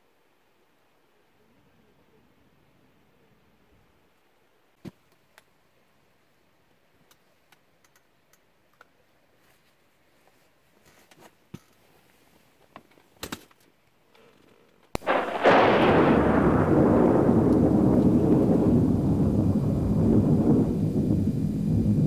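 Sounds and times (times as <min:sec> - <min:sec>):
faint irregular clicks: 0:04.9 - 0:05.6, 0:07.0 - 0:09.0, 0:12.6 - 0:15.1.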